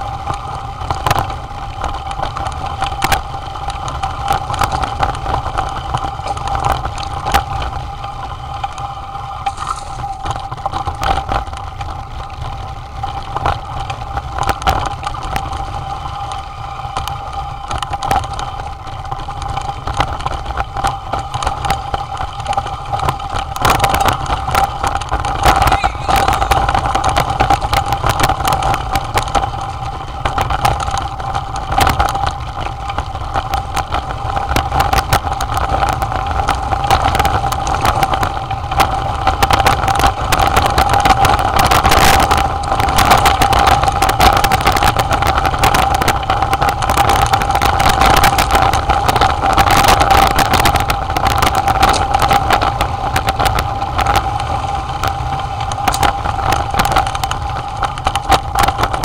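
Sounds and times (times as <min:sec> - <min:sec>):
bike rumbling on rocky trail: 0:00.0 - 0:59.0
steady high whine: 0:05.3 - 0:11.0, 0:25.0 - 0:28.2.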